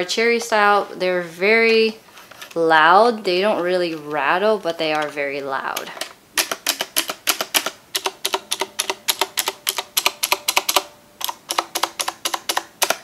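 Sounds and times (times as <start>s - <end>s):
mechanical keyboard clicking: 5.7s - 13.0s.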